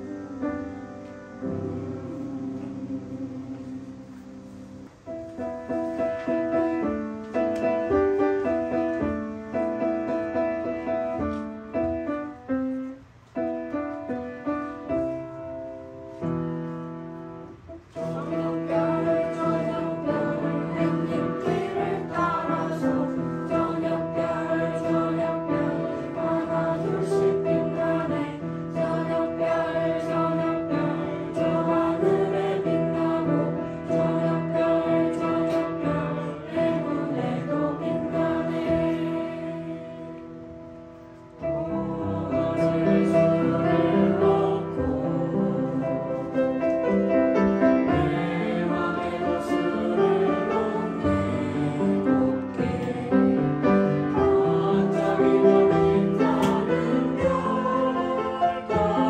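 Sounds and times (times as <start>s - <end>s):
children and adults singing: 0.0s - 5.0s, 17.7s - 40.4s, 41.1s - 59.0s
upright piano playing: 0.0s - 59.0s.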